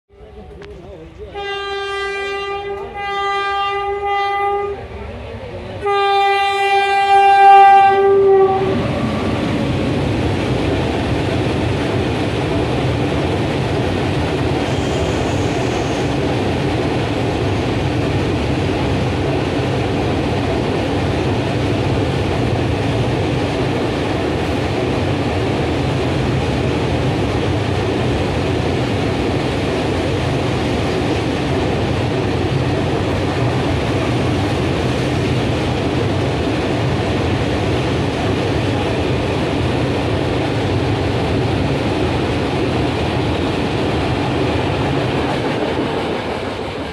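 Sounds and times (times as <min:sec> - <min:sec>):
train horn blasts: 0:01.3 - 0:05.0, 0:05.8 - 0:09.3
freight wagons rumbling on rails: 0:02.9 - 0:46.9.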